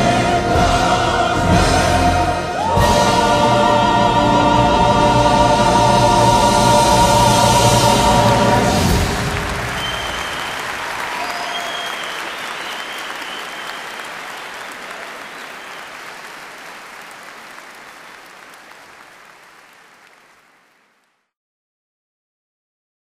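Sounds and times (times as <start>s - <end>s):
audience applauding: 7.3s - 21.3s.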